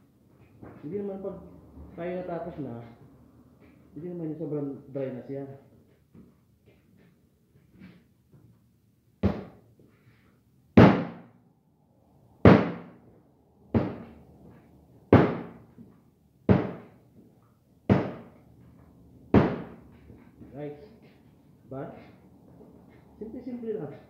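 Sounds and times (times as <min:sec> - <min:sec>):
dough thumping on table: 0:09.2 - 0:09.6, 0:10.8 - 0:11.2, 0:12.4 - 0:13.0, 0:13.7 - 0:14.2, 0:15.1 - 0:15.6, 0:16.5 - 0:17.0, 0:17.9 - 0:18.3, 0:19.3 - 0:19.8.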